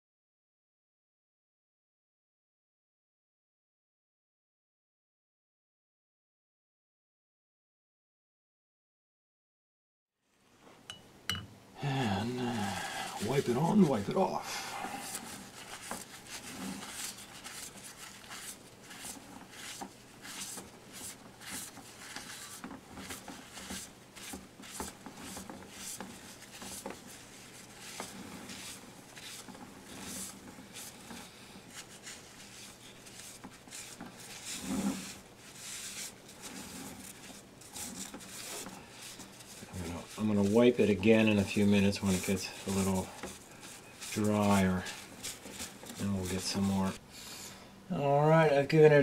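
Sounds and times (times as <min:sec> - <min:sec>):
paper towel scratching: 0:12.2 - 0:47.0.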